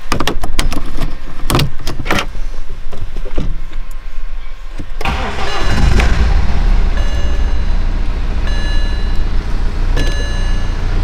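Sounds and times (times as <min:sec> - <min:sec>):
diesel engine cranking and starting: 0:05.0 - 0:11.0.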